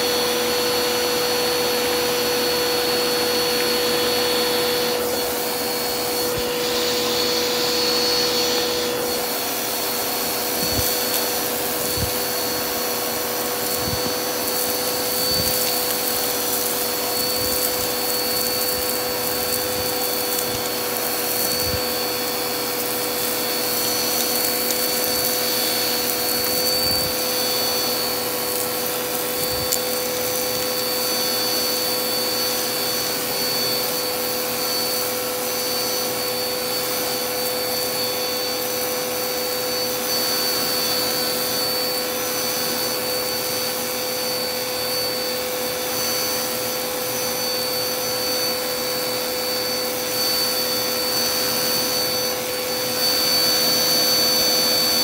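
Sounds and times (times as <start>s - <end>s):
vacuum cleaner running: 0.0s - 55.0s.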